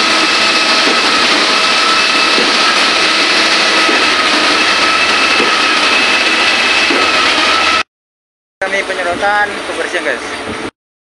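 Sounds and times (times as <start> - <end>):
truck and pump engine drone: 0.0 - 7.8
constant high whine: 0.0 - 7.9, 8.6 - 10.7.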